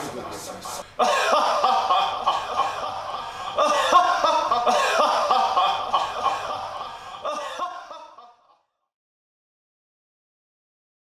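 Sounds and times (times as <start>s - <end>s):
man's theatrical villain laugh: 1.0s - 8.6s.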